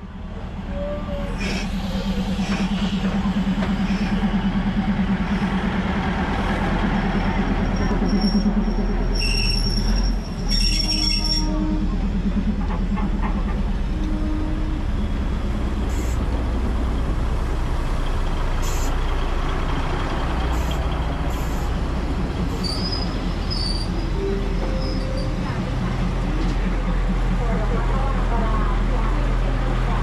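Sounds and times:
diesel train rumbling: 0:00.0 - 0:30.0.

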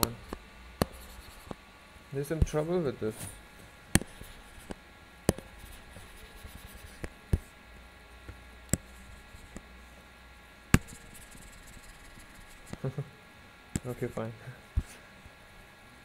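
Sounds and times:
stylus tapping tablet screen: 0:00.0 - 0:01.6, 0:03.9 - 0:07.5, 0:08.7 - 0:09.6, 0:10.8 - 0:12.8.

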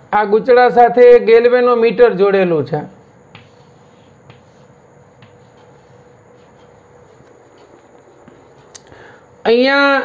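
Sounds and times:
chalk scratching on blackboard: 0:02.9 - 0:08.7
chalk tapping: 0:02.9 - 0:08.9.

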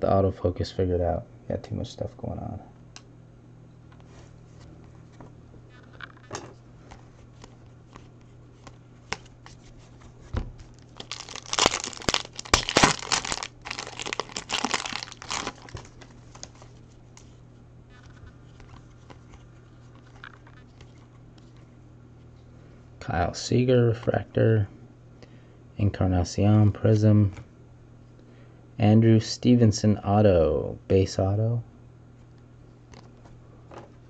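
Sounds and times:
foil wrapper tearing and crinkling: 0:10.7 - 0:16.7.

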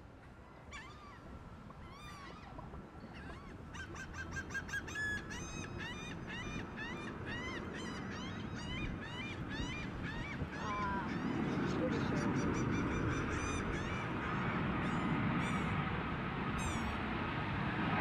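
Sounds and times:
birds calling: 0:00.7 - 0:15.9, 0:16.6 - 0:17.0
jet engines rumbling: 0:06.2 - 0:18.0.

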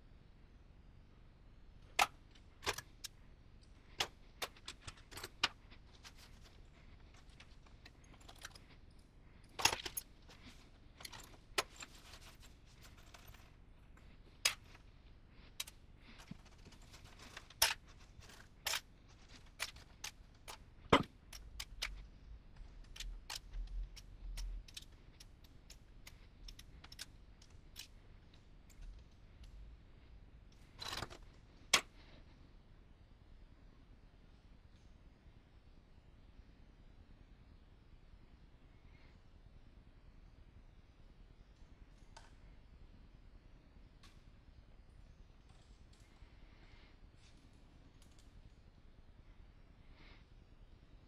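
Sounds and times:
small metal parts clinking: 0:03.9 - 0:14.8, 0:15.4 - 0:22.0, 0:22.6 - 0:29.6.

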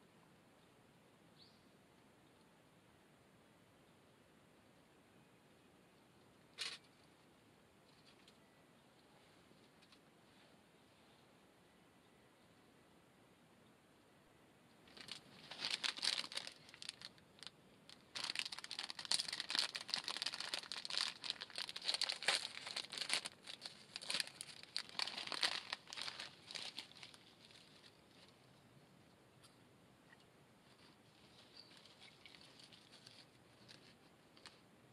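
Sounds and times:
plastic snack bag crinkling: 0:14.9 - 0:28.2, 0:31.3 - 0:34.6.

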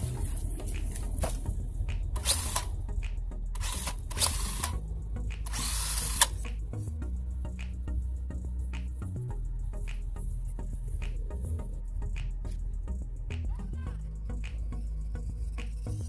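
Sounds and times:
electric motor whirring: 0:02.2 - 0:02.8, 0:03.6 - 0:04.8, 0:05.4 - 0:06.4.

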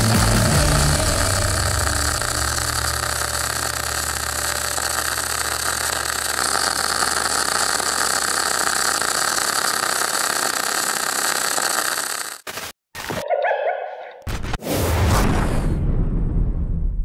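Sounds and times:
low hum: 0:00.0 - 0:08.0
arc welding crackling hiss: 0:00.0 - 0:12.7.

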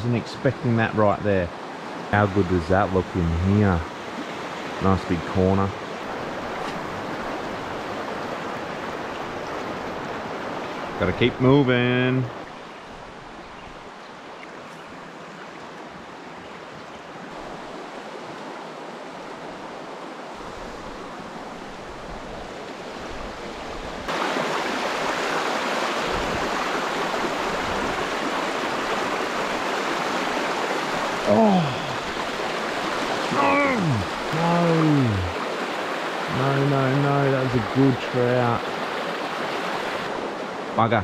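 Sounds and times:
river rushing over rocks: 0:14.9 - 0:40.8
man exclaiming: 0:31.2 - 0:32.1, 0:33.3 - 0:35.4.

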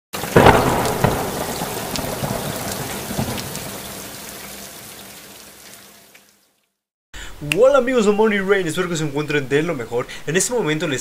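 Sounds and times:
rain patter: 0:00.1 - 0:06.8
loud crack: 0:00.2 - 0:05.0.

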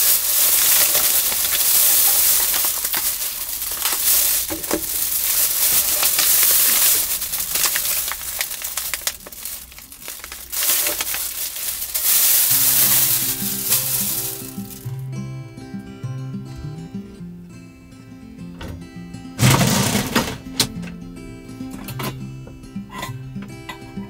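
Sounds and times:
plastic bag rustling: 0:00.0 - 0:15.0.

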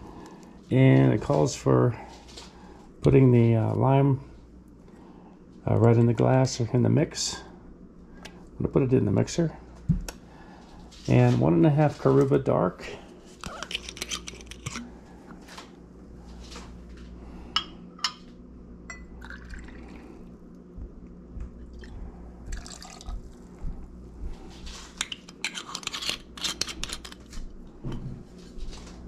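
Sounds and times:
low steady hum: 0:00.0 - 0:29.0
liquid pouring from a bottle: 0:22.5 - 0:23.2.

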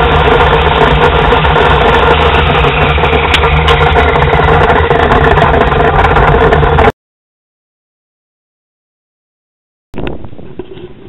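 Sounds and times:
engine idling: 0:00.0 - 0:06.9.

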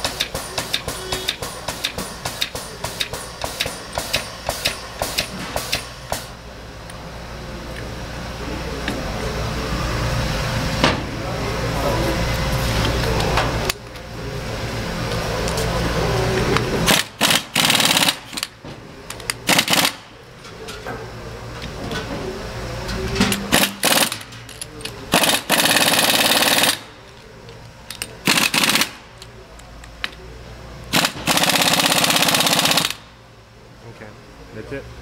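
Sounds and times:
impact wrench hammering: 0:00.0 - 0:06.4, 0:16.9 - 0:18.6, 0:19.4 - 0:20.1, 0:23.2 - 0:24.5, 0:25.1 - 0:26.9, 0:28.0 - 0:29.0.

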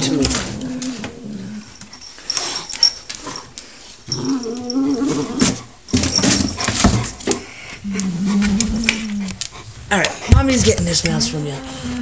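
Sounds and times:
cat growling: 0:04.1 - 0:05.6, 0:07.8 - 0:09.4.

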